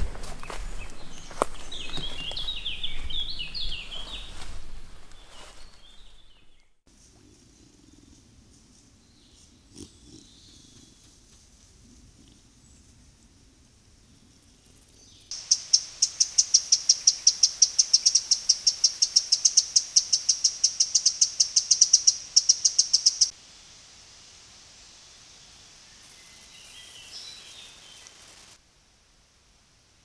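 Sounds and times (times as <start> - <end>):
faint outdoor hiss: 0.0 - 30.0
high-pitched animal chirps: 15.3 - 23.3.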